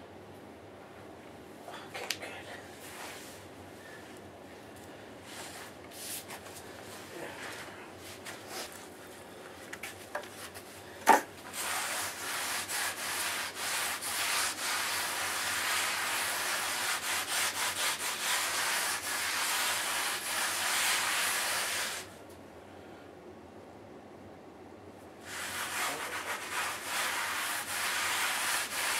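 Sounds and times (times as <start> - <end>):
rag rubbing wet mortar: 11.5 - 22.1, 25.3 - 28.9.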